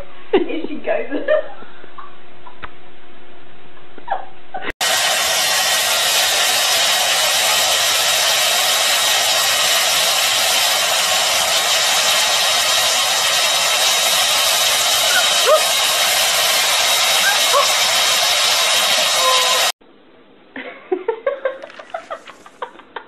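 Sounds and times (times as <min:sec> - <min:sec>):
hair dryer blowing: 0:04.8 - 0:19.8, 0:21.6 - 0:22.7.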